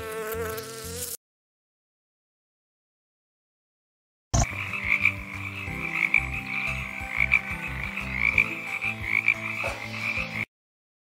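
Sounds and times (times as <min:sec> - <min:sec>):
tree frogs trilling: 0:04.4 - 0:10.5.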